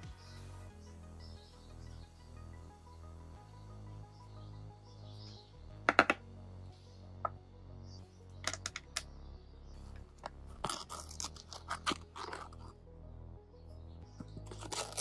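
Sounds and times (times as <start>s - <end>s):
items tapping on wooden tabletop: 5.9s - 6.2s, 8.4s - 9.0s
cardboard package ripping: 10.6s - 12.7s, 14.4s - 15.0s.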